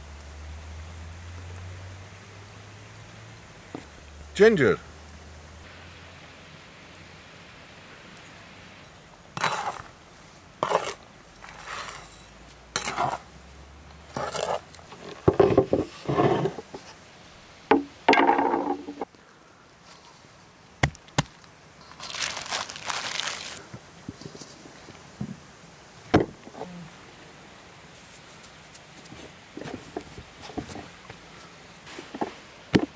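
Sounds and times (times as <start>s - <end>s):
metal spoon scraping on board: 9.4s - 9.9s, 10.6s - 13.3s, 14.1s - 16.8s.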